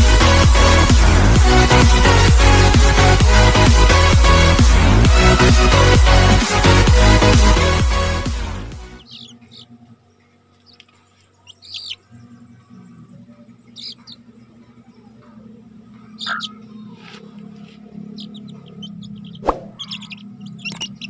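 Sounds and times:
chicks peeping: 0.0 - 6.2, 8.7 - 21.0
electronic dance music: 0.0 - 9.0
faint low hum: 9.0 - 21.0.

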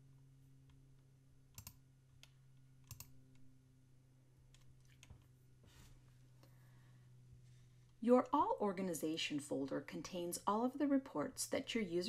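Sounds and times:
low electrical hum: 0.0 - 12.0
computer mouse clicks: 1.5 - 3.2.

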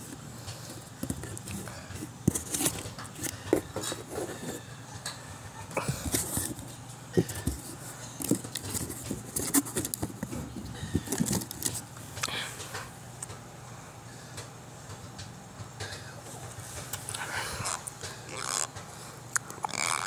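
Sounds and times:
cardboard box scraping and rustling: 0.6 - 4.6, 5.8 - 11.8.

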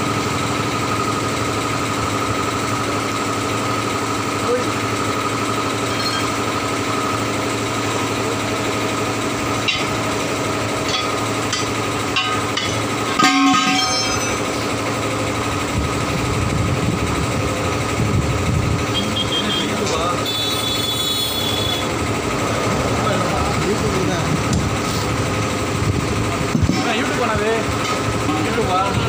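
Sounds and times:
engine running: 0.0 - 29.0
steel rim clanging: 10.8 - 14.7.

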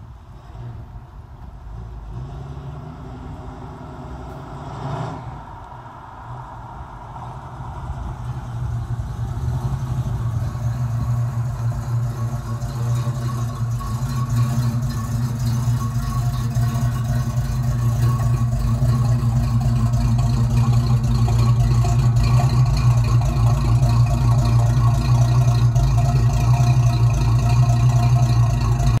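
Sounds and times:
deep exhaust rumble: 0.0 - 29.0.

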